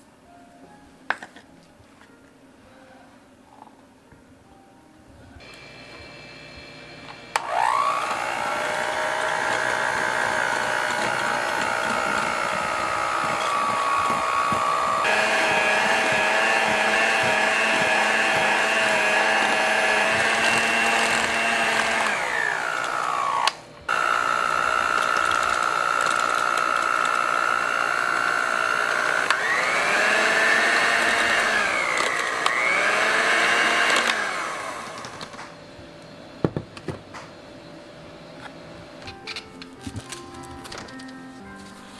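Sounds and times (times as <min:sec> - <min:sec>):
electric hand mixer whine: 0:05.4 - 0:35.6.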